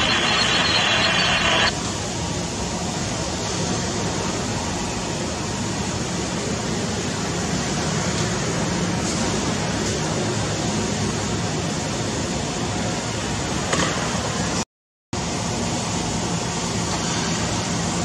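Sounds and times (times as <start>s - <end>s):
crackly radio transmission: 0.0s - 1.7s
jet engines running: 0.0s - 1.8s.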